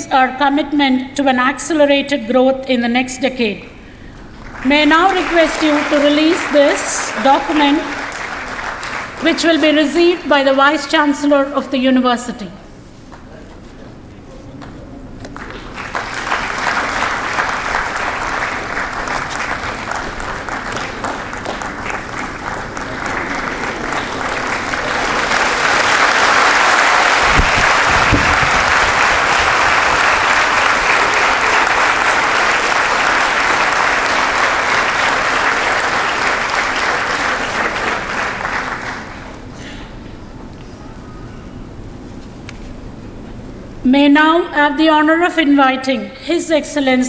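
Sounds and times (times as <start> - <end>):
audience applauding: 4.3 - 11.0, 15.3 - 39.6.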